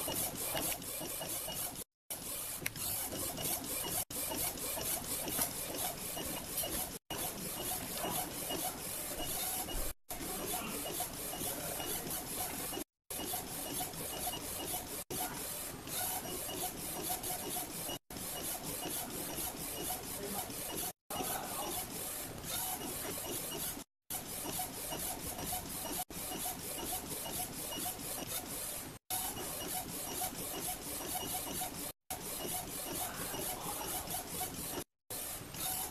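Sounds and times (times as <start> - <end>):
printer carriage whirring: 0.0 - 35.9.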